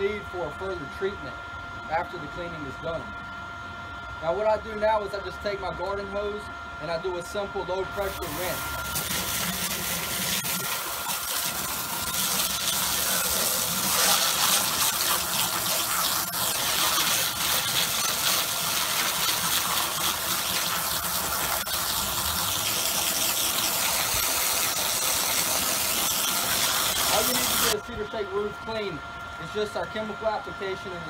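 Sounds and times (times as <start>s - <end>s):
hose spraying water on roof: 8.1s - 27.8s.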